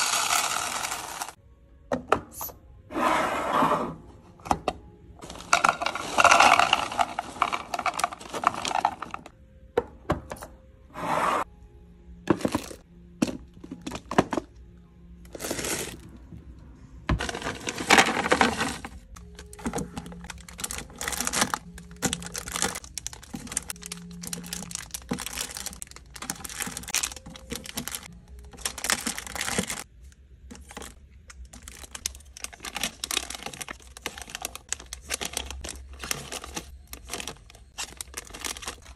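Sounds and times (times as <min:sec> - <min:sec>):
candies poured into plastic bin: 0:00.0 - 0:01.4, 0:05.2 - 0:09.3, 0:15.3 - 0:16.0, 0:17.2 - 0:29.9, 0:30.5 - 0:38.9
foil packets crinkling: 0:05.2 - 0:09.3, 0:17.2 - 0:29.9, 0:30.5 - 0:38.9.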